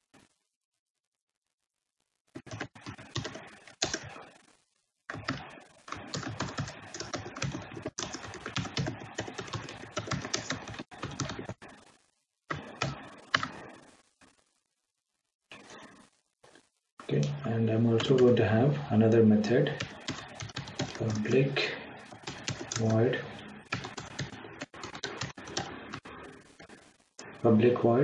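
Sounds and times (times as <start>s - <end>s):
typing on a keyboard: 2.4s - 4.2s, 5.1s - 11.6s, 19.8s - 21.2s, 22.1s - 23.0s, 23.7s - 26.1s.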